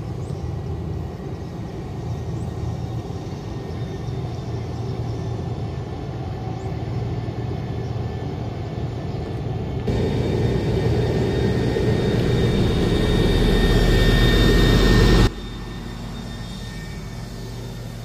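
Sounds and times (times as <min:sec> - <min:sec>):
road roller engine rumbling: 0:09.6 - 0:18.0.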